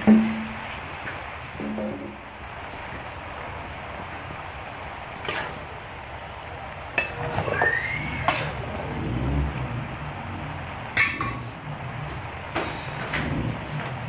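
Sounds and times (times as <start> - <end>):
metal spatula clanking on a wok: 11.0 - 11.6.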